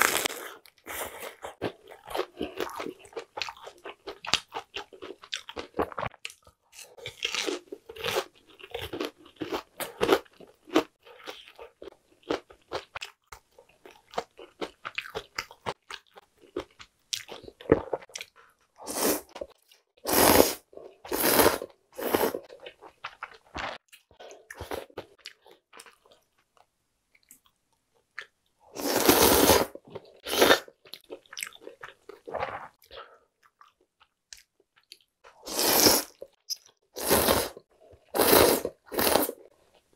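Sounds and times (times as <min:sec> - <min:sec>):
crunching crispy food: 0:00.0 - 0:13.2
slurping noodles: 0:18.8 - 0:19.4, 0:20.0 - 0:22.6, 0:28.8 - 0:30.7, 0:35.4 - 0:36.2, 0:37.0 - 0:39.5.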